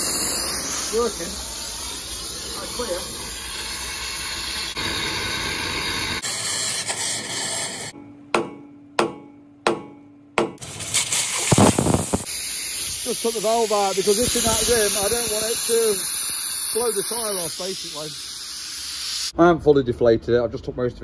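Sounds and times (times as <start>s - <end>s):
steady hiss: 0.0s - 7.9s, 10.6s - 19.4s.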